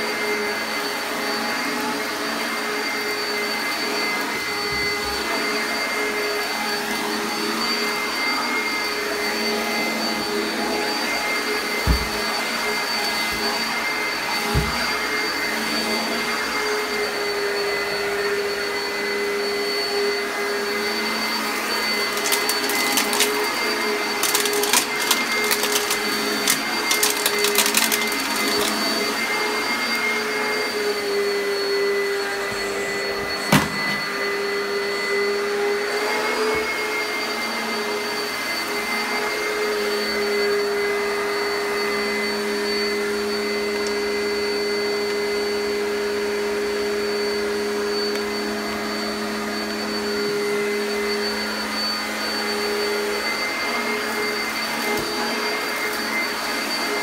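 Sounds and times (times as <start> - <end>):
vacuum cleaner motor whine: 0.0 - 57.0.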